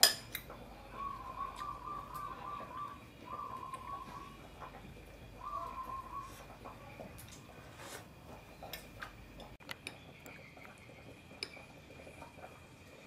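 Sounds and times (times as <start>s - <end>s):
spoon clinking against glass bowl: 0.0s - 0.4s.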